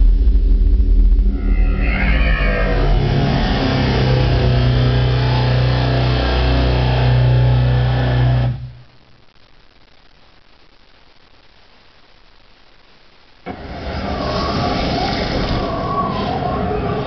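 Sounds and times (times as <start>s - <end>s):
deep bass drone with rushing layer: 0.0s - 8.9s
faint hiss: 8.5s - 17.0s.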